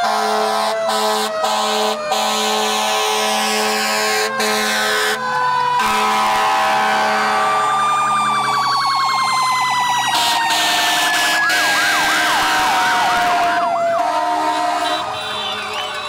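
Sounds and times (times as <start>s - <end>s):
fire engine siren wailing: 0.0s - 16.0s
siren yelping: 0.4s - 16.0s.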